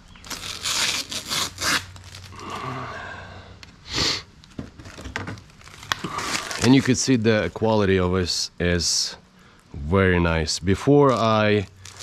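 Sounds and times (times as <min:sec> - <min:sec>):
soft rasp of film peeling: 0:00.2 - 0:02.3
plastic film ripping off: 0:00.2 - 0:02.5, 0:04.4 - 0:07.1, 0:11.0 - 0:12.0.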